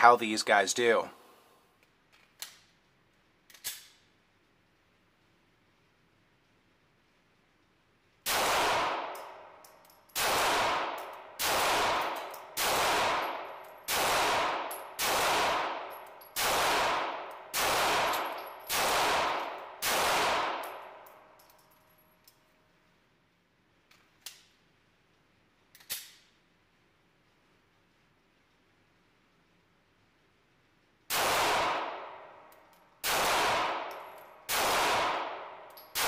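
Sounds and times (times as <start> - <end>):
pistol shots echoing indoors: 8.2 - 22.4, 31.1 - 36.0.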